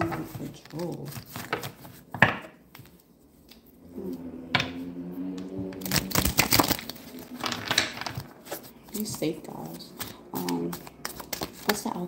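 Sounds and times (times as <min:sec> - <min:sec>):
woman humming: 0:03.8 - 0:05.9.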